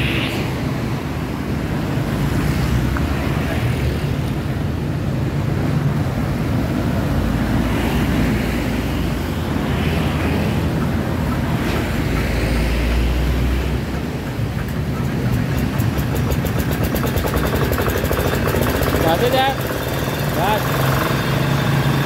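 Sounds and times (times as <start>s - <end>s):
street traffic: 0.0s - 22.0s
diesel engine cranked and running: 0.6s - 22.0s.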